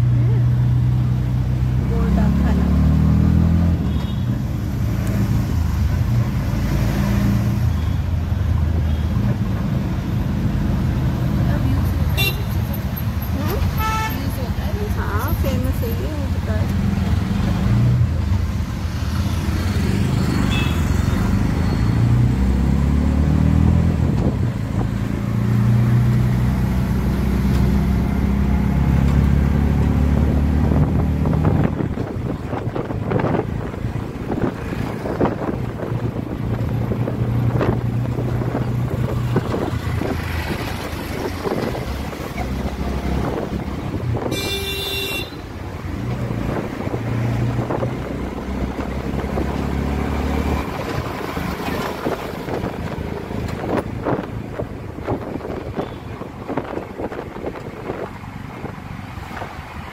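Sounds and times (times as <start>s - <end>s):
road traffic: 0.0s - 59.9s
vehicle horn toot: 12.2s - 12.6s, 20.5s - 20.8s, 44.3s - 45.5s.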